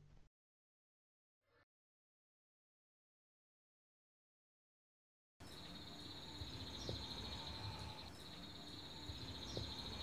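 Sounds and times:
insects chirring: 0:05.4 - 0:10.0.

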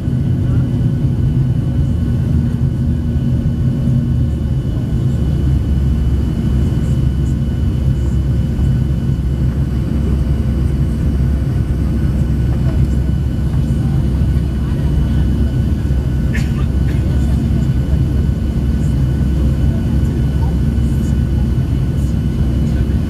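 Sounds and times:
jet engine cabin rumble: 0:00.0 - 0:23.0.

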